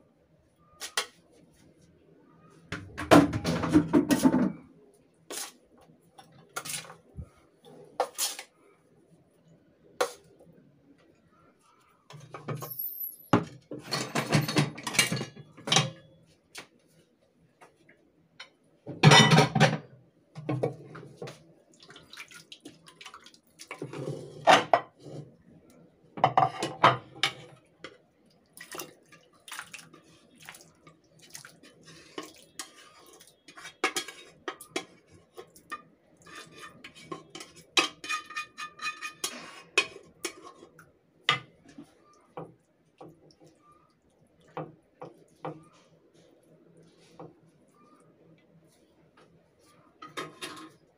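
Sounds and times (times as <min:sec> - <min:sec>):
utensils clattering on ceramic platter: 0:12.2 - 0:16.0.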